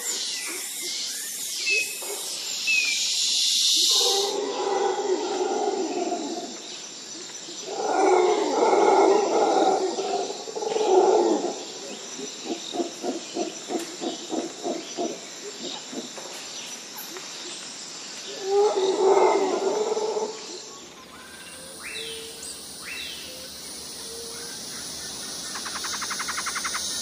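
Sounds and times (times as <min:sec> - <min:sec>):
high hissing drone: 0:21.0 - 0:27.0.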